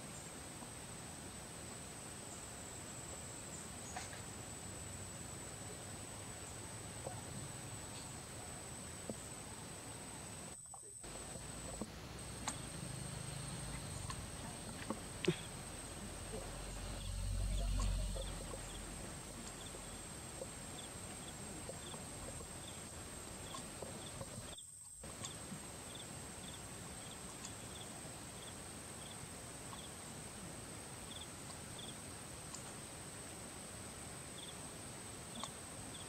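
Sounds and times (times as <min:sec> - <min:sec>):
low rumble: 0:11.1 - 0:20.6
high-pitched insect drone: 0:16.2 - 0:19.0.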